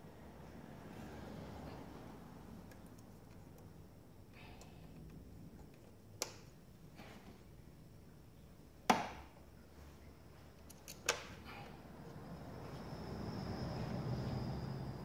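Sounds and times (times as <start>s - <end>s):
tools and parts clicking and knocking: 10.6s - 11.4s.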